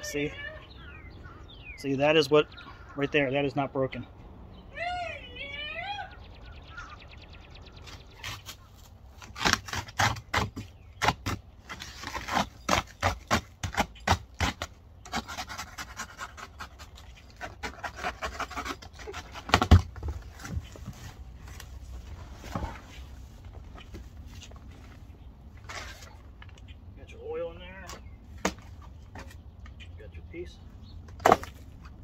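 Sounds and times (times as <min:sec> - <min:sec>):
cutting through cardboard: 0:07.8 - 0:23.1
cardboard rustling: 0:15.9 - 0:26.5.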